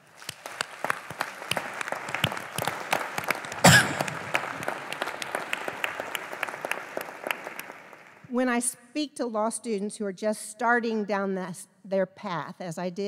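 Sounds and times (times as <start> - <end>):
large audience applauding: 0.0 - 8.3.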